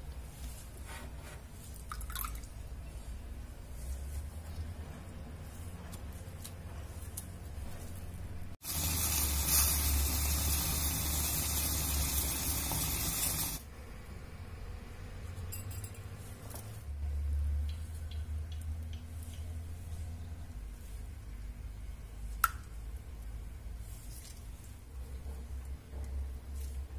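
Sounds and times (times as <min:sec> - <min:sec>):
syrup boiling and bubbling: 0:08.6 - 0:13.6.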